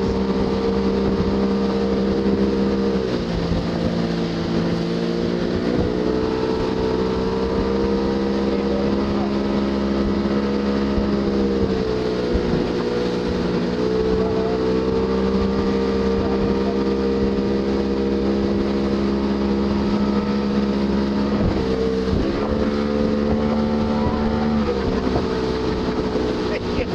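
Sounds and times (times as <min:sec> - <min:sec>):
motorboat engine running: 0:00.0 - 0:26.9.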